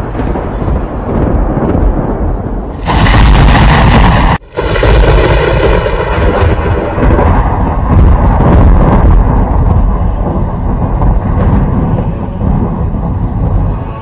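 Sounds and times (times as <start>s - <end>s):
thunder rumbling: 0.0s - 14.0s.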